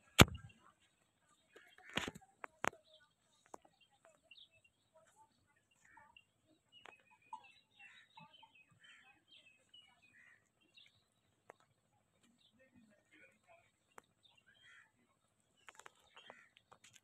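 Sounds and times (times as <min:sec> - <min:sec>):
small birds chirping: 0:00.0 - 0:17.0
sharp click: 0:00.2 - 0:00.4.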